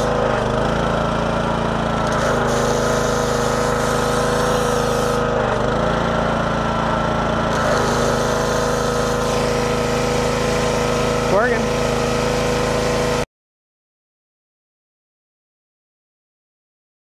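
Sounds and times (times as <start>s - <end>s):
gas engine running: 0.0s - 13.3s
high-pressure water spray hissing: 2.1s - 5.3s, 7.5s - 13.2s.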